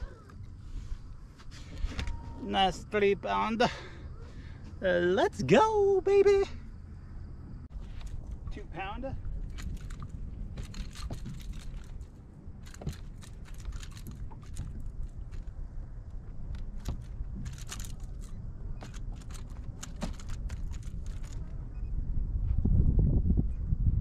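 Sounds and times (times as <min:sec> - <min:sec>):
wind rumble on microphone: 0:06.1 - 0:24.0
sharp clicks and crackles: 0:09.4 - 0:21.6.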